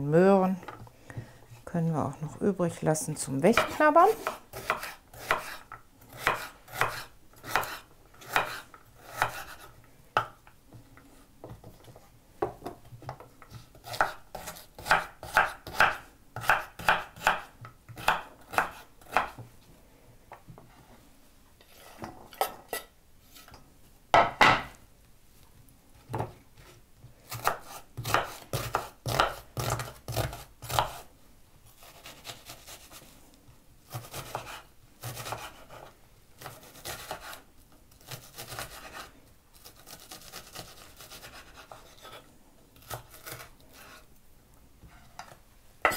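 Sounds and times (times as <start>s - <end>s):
knife chopping on wooden board: 3.6s - 9.6s, 13.8s - 19.4s, 27.3s - 31.0s, 33.9s - 37.4s.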